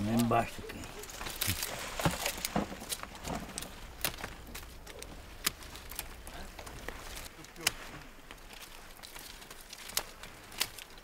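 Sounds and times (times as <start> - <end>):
rustle of vine leaves: 0.0 - 11.0
pruning shears snipping: 1.2 - 7.9.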